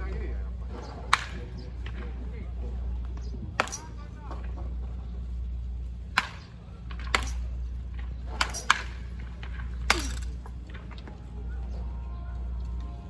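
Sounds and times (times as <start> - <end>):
low steady rumble: 0.0 - 13.0
bat cracking ball: 0.9 - 2.2, 3.5 - 4.0, 6.1 - 11.0.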